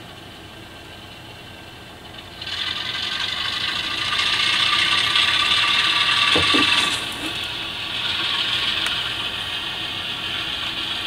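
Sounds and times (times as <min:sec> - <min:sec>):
low knocks: 0:06.3 - 0:07.4.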